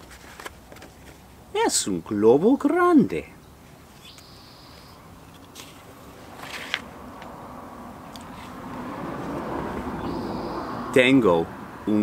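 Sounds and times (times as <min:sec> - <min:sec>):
book page rustling: 0:00.0 - 0:01.3, 0:05.4 - 0:06.9
low background noise: 0:00.0 - 0:12.0.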